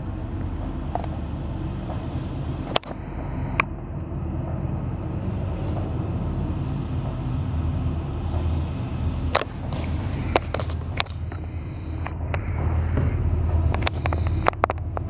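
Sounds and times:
diesel locomotive engine rumble: 0.0 - 15.0
sharp clicks: 13.7 - 15.0.

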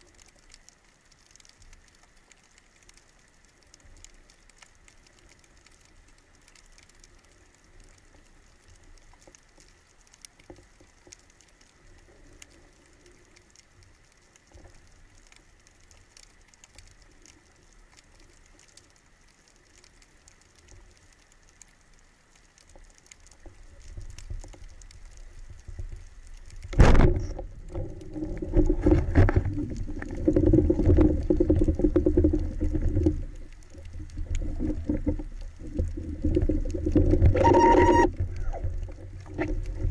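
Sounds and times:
faint underwater crackling: 0.0 - 39.9
loud rumbling water noise: 26.6 - 39.9.

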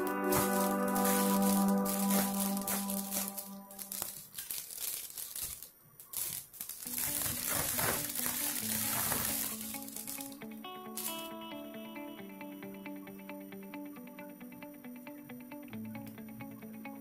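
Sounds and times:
background music: 0.0 - 4.2, 6.9 - 17.0
plastic wrapping crinkling: 0.0 - 11.3.

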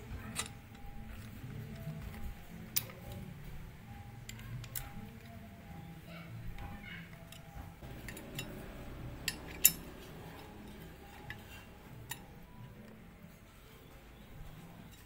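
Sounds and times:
metallic clicks of bicycle parts: 6.6 - 13.0.

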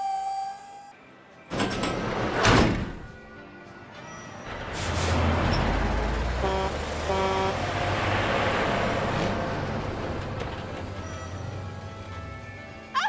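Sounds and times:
vehicle engine rumbling: 4.4 - 12.7
short horn toots: 6.4 - 7.6.

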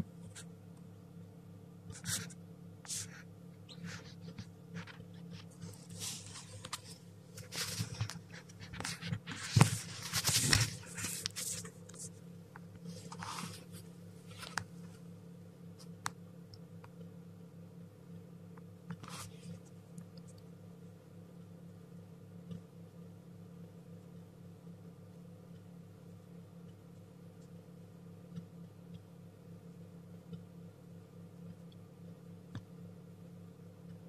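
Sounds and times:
steady low hum: 0.0 - 34.0
chick rustling in wood shavings: 2.9 - 12.2, 12.8 - 14.6.

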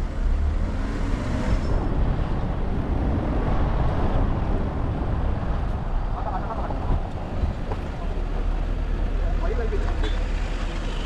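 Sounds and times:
car engine and road noise: 0.0 - 11.0
wind buffeting microphone: 1.1 - 8.6.

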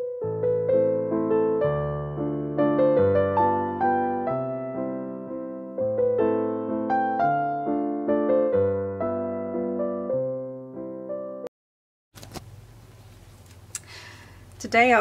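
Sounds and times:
gentle piano music: 0.0 - 11.5.

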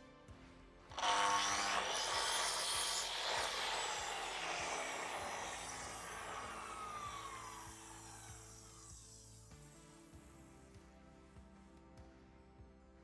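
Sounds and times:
mitre saw cutting wood: 0.9 - 9.7
saw blade winding down whine: 0.9 - 9.8.

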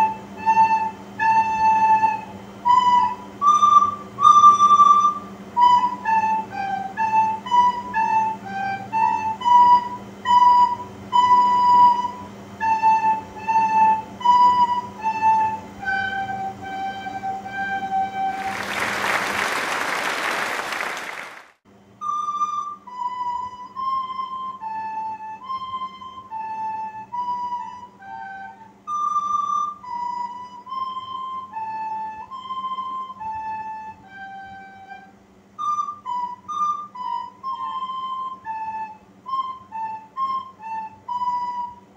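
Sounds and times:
recorders playing melody: 14.5 - 20.2.

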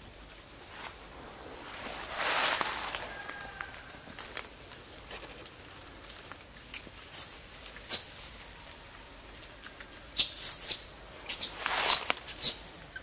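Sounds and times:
high-pitched animal squeaks: 10.2 - 13.0.

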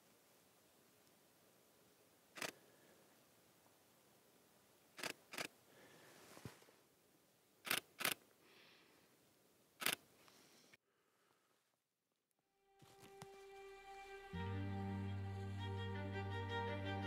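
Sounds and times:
faint steady hiss: 0.0 - 11.8, 12.7 - 17.0
camera shutter clicks: 2.4 - 2.6, 7.7 - 8.2, 9.8 - 10.0.

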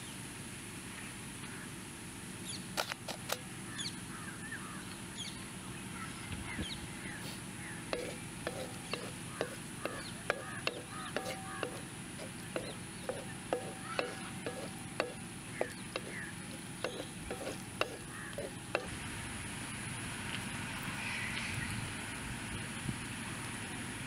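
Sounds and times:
wooden stick scraping a wok: 8.0 - 18.9.

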